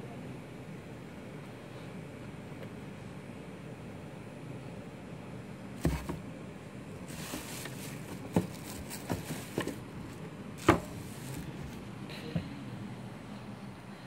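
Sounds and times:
sneaker knocking in cardboard box: 0:05.8 - 0:06.2, 0:10.6 - 0:11.0
packing rustling: 0:07.1 - 0:11.9.

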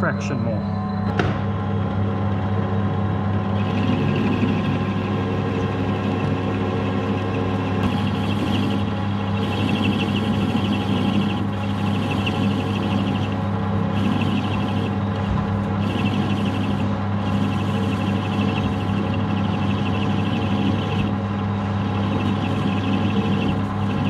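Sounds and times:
lathe motor hum: 0:00.0 - 0:24.0
rasping metal cutting: 0:07.8 - 0:15.0, 0:15.8 - 0:21.1.

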